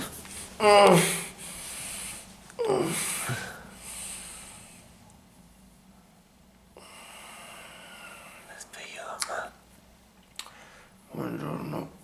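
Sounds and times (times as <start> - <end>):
person groaning: 0.6 - 1.4, 2.6 - 3.7
faint breath: 3.0 - 5.0, 6.8 - 8.6, 10.5 - 11.0.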